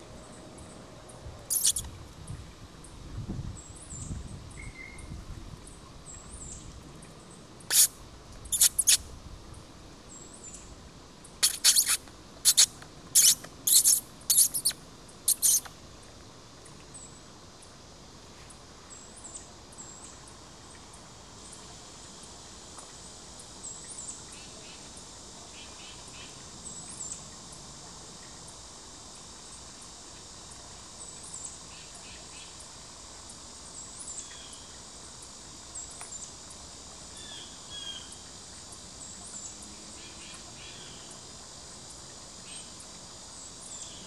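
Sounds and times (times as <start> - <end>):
faint high bird chirps: 1.5 - 1.9, 3.9 - 5.2, 7.7 - 7.9, 8.5 - 9.0, 11.4 - 15.7.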